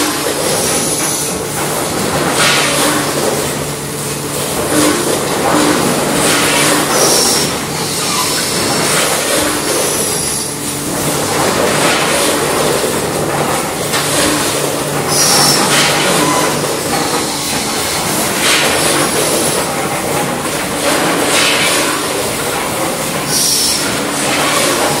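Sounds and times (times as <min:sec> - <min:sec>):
machinery hum and clatter: 0:00.0 - 0:25.0
machine noise burst with squeal: 0:06.5 - 0:10.6, 0:15.1 - 0:18.0, 0:23.3 - 0:25.0.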